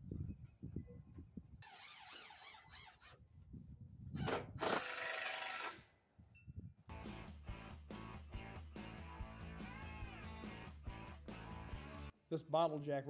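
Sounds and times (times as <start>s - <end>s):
power driver driving screws: 1.6s - 3.1s, 4.2s - 5.8s.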